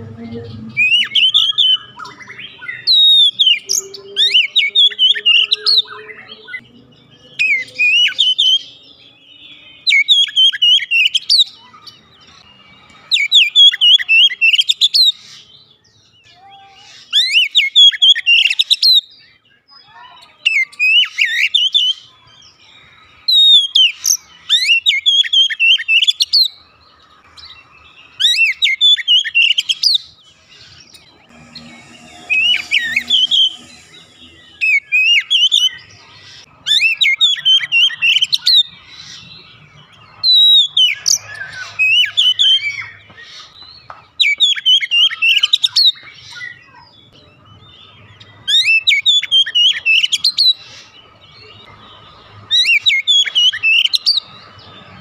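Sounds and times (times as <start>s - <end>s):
bird singing whistles and trills: 0.8s - 11.8s.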